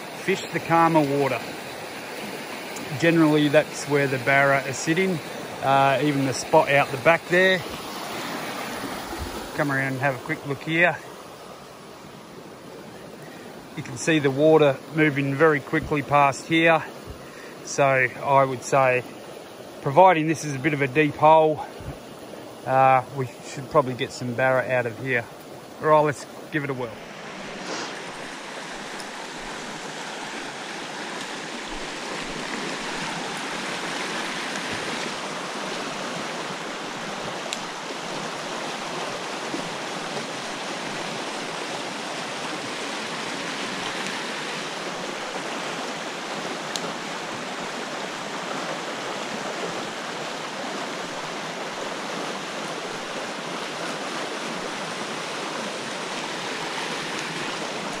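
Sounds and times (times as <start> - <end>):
creek water rushing over rapids: 0.0 - 58.0
faint ticks: 46.7 - 46.9.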